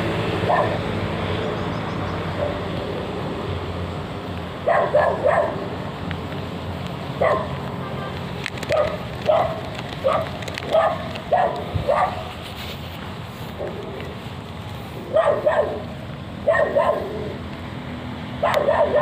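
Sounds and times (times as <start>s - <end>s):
dog barking: 0.4s - 0.8s, 2.4s - 2.7s, 4.6s - 5.6s, 7.2s - 7.6s, 8.7s - 12.3s, 15.1s - 17.3s, 18.4s - 19.0s.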